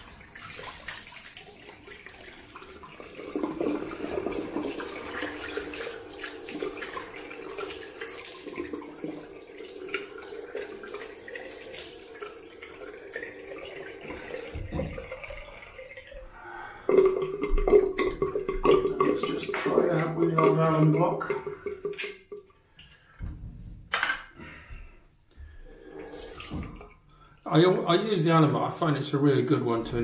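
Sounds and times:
water splashing on face: 0.0s - 19.8s, 26.0s - 27.0s
tap water running into sink: 0.0s - 22.4s, 25.8s - 27.0s.

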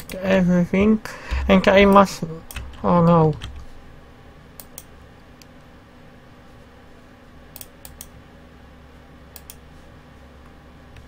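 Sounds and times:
faint steady hum: 0.0s - 11.0s
mouse and keyboard clicks: 0.8s - 3.6s.

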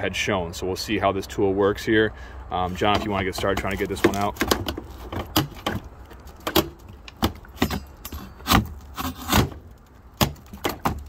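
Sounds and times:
metal tool knocking and scraping wood: 2.7s - 9.6s, 10.2s - 11.0s.

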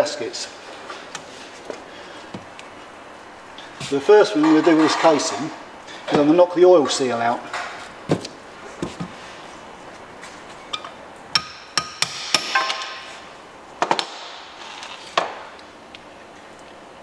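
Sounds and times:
hammer tapping metal: 11.3s - 13.0s.

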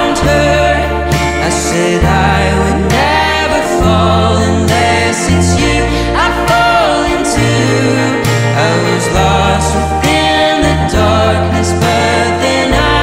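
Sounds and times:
song with bass and singing: 0.0s - 13.0s.

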